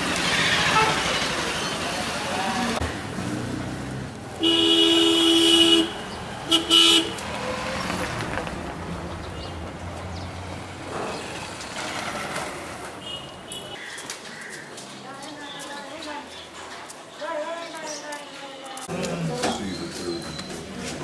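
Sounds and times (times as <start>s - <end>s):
street traffic: 0.0s - 21.0s
vehicle horn honking: 4.4s - 7.2s.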